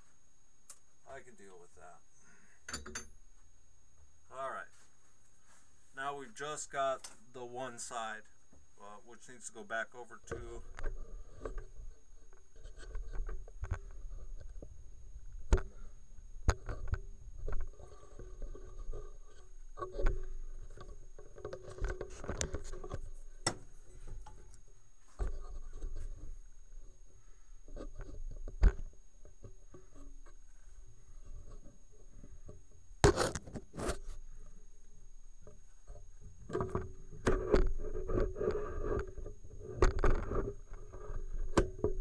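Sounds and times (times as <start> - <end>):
metal tools knocking and clicking: 2.7 - 3.1.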